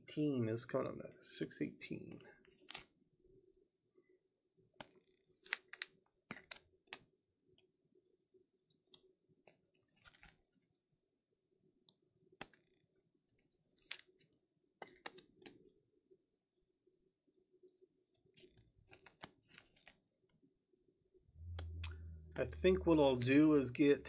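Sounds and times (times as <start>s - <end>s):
soft clicks of cards: 2.1s - 2.9s, 13.7s - 15.6s, 18.4s - 20.1s.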